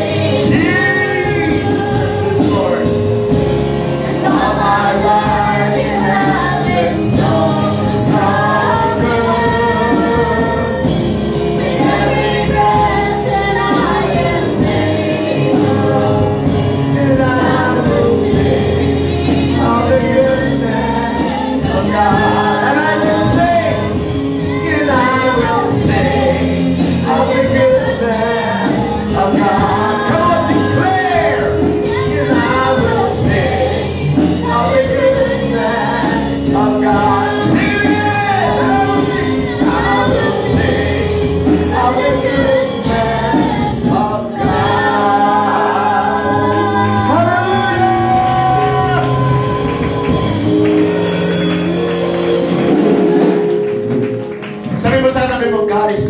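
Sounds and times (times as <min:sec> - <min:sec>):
congregation singing: 0:00.0 - 0:56.0
instrumental accompaniment: 0:00.0 - 0:56.0
person singing into microphone: 0:11.6 - 0:50.7.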